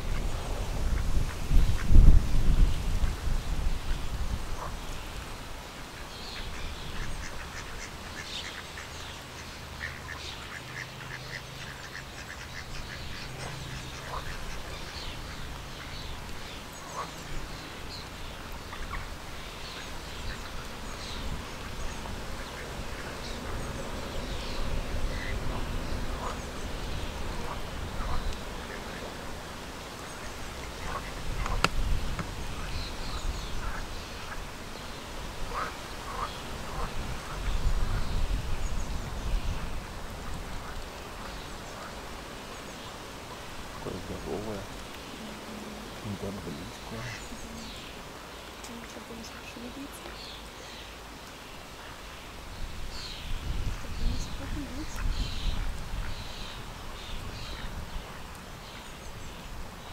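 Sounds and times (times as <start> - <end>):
cygnets peeping: 42.6 - 50.9.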